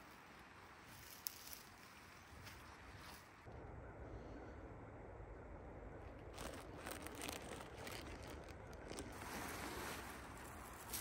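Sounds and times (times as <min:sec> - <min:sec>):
canvas fabric rustling: 0:06.3 - 0:11.0.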